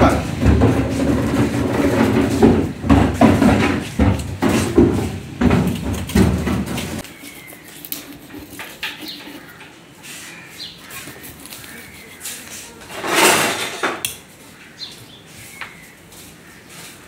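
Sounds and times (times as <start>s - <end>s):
knife scraping fish scales: 6.8s - 13.5s.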